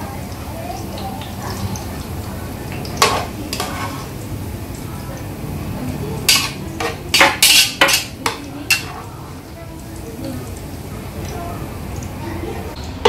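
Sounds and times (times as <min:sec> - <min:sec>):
metal tongs clinking on pot and bowl: 0:02.7 - 0:04.2, 0:06.2 - 0:09.4.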